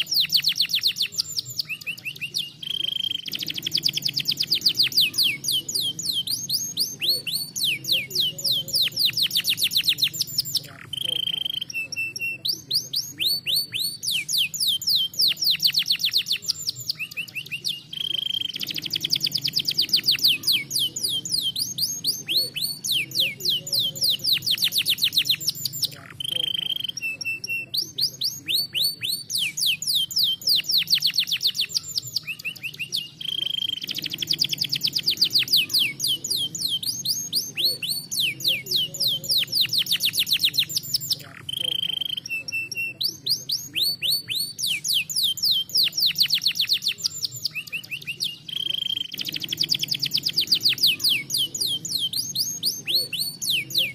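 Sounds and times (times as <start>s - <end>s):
canary singing trills: 0.0s - 53.9s.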